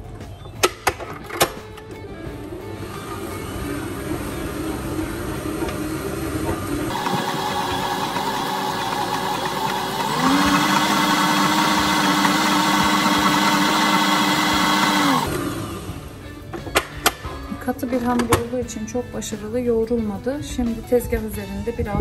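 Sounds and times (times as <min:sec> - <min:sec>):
stand mixer kneading dough: 0:02.8 - 0:16.1.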